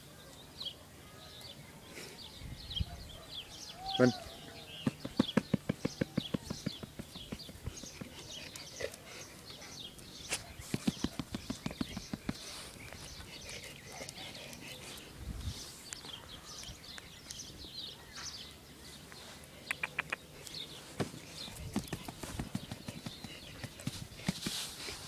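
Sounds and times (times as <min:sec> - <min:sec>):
faint birds chirping: 0:00.0 - 0:25.0
dog panting: 0:07.6 - 0:09.9, 0:10.8 - 0:15.1, 0:21.2 - 0:25.0.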